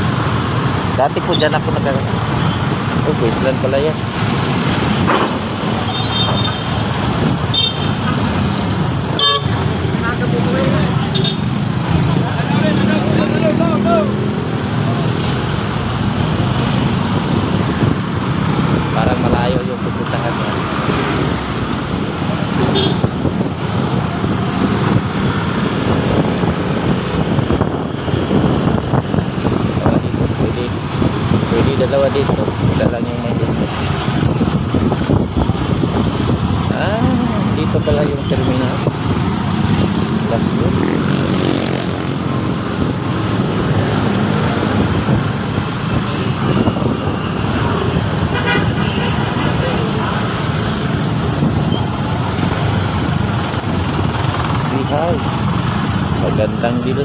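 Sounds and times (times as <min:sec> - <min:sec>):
motorcycle engine rumbling: 0:00.0 - 0:57.0
road and traffic noise: 0:00.0 - 0:57.0
wind buffeting microphone: 0:20.8 - 0:54.6.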